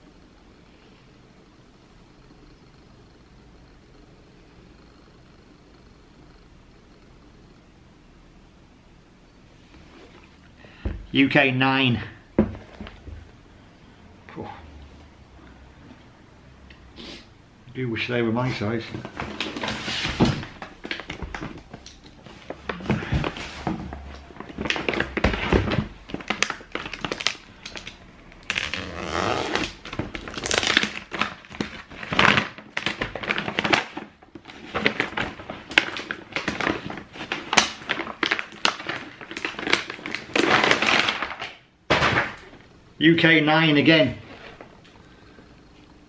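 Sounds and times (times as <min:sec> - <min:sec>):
paper rustling and crinkling: 0:18.5 - 0:42.5.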